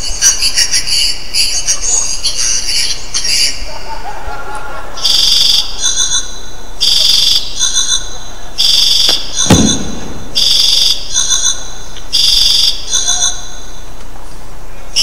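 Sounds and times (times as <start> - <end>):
thump: 9.5 - 10.5.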